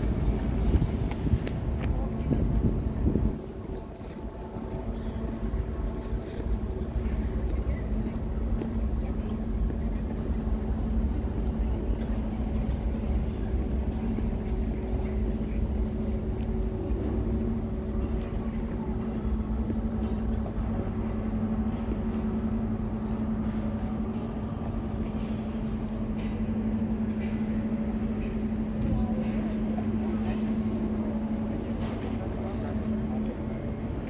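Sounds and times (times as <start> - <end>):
steady mechanical hum: 0.0 - 34.0.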